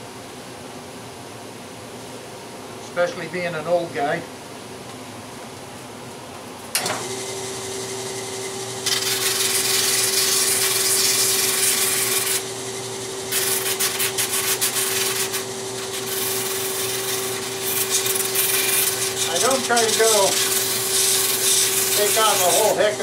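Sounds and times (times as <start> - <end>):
drum sander motor humming: 6.8 - 23.0
wood rasping against sanding drum: 8.9 - 12.4, 13.3 - 23.0.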